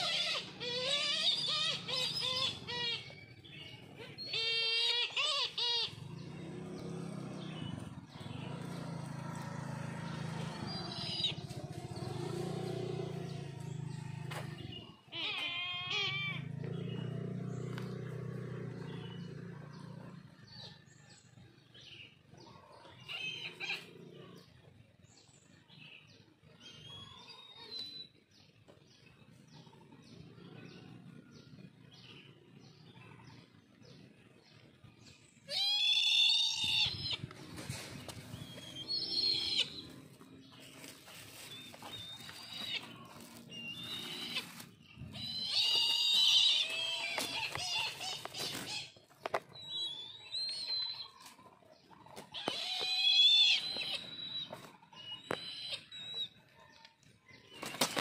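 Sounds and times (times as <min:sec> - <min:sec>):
kites mewing calls: 0:04.1 - 0:06.2, 0:40.7 - 0:49.2.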